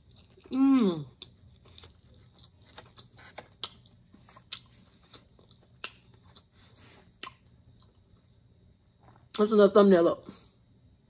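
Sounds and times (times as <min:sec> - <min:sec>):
person chewing crispy food: 0:00.0 - 0:08.1
wet mouth clicks: 0:05.8 - 0:06.0.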